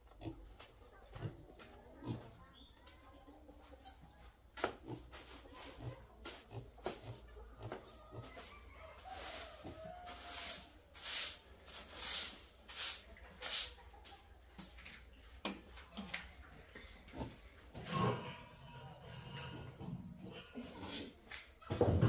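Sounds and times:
broom sweeping concrete floor: 4.6s - 15.1s.

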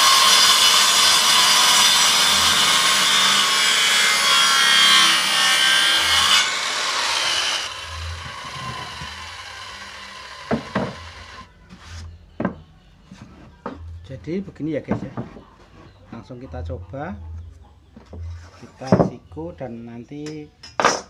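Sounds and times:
circular saw cutting wood: 0.0s - 11.5s
boards knocking: 10.4s - 11.2s.

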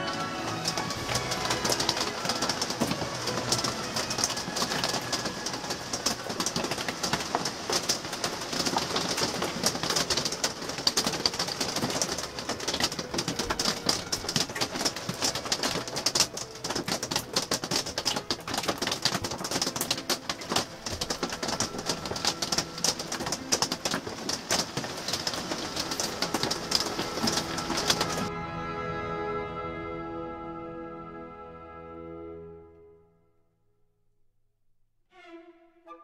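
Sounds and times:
rain patter: 0.0s - 28.5s.

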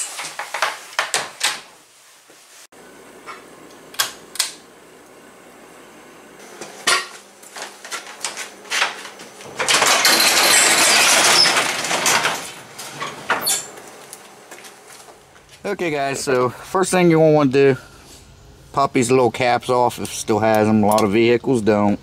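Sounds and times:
garage door rattling on tracks: 9.5s - 13.7s.

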